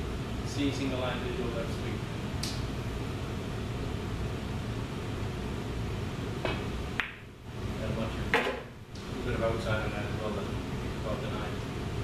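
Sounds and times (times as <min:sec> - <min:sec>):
low room hum: 0:00.0 - 0:12.0
cue tip striking ball: 0:06.4 - 0:07.3.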